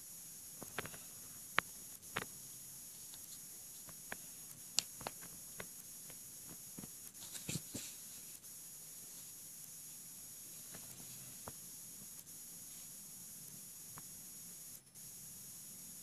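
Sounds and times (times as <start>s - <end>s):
steady hiss: 0.0s - 16.0s.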